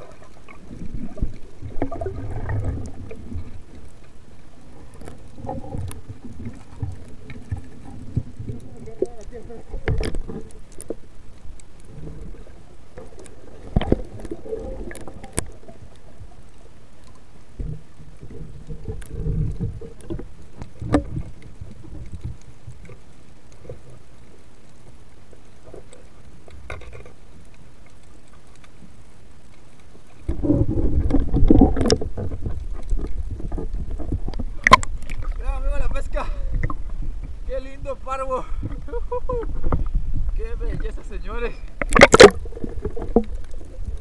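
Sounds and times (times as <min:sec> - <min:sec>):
muffled underwater rush: 0:00.0 - 0:44.0
water churning and bubbling: 0:00.0 - 0:44.0
sharp clicks and knocks: 0:41.8 - 0:43.5.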